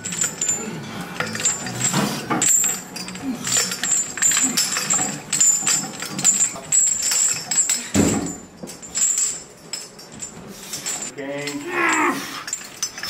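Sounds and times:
weight plates clanking: 0.0s - 13.0s.

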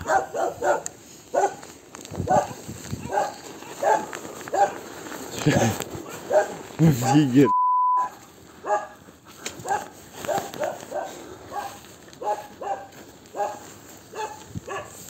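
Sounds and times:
large dogs barking: 0.0s - 7.5s, 8.5s - 15.0s.

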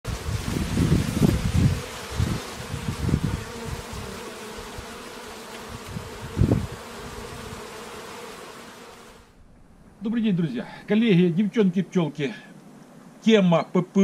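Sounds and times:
wind buffeting microphone: 0.1s - 4.9s, 5.7s - 7.6s
honeybees buzzing: 0.1s - 13.3s.

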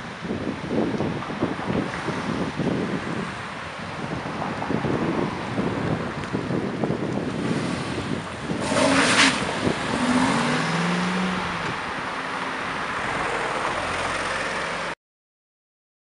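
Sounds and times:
car engine revving and accelerating: 7.3s - 14.9s.

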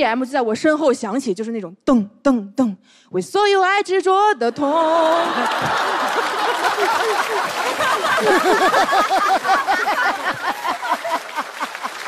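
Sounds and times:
audience clapping: 4.8s - 12.0s
audience laughing: 4.8s - 12.0s.

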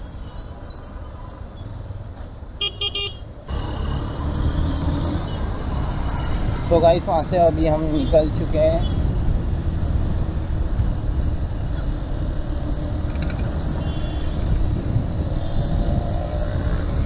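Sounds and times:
wind rumble on microphone: 8.3s - 17.0s.

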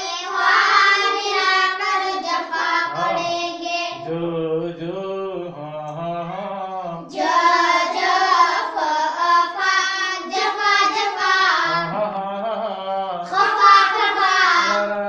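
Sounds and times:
children chanting in unison: 0.0s - 4.2s, 7.0s - 12.0s, 13.2s - 15.0s
man's voice leading: 2.9s - 3.3s, 11.7s - 13.3s, 14.6s - 15.0s.

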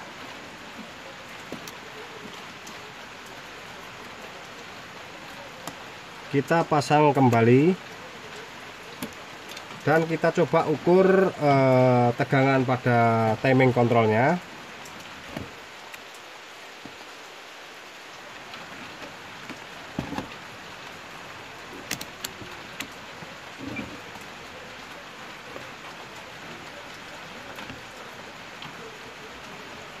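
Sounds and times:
light rain pattering: 0.0s - 30.0s
small clicks and knocks: 21.6s - 23.0s.

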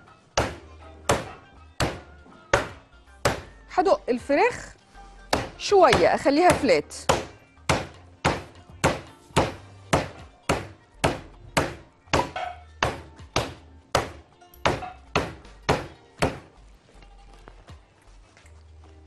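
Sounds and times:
meat pounded on wooden board: 0.4s - 3.5s, 5.3s - 16.5s.

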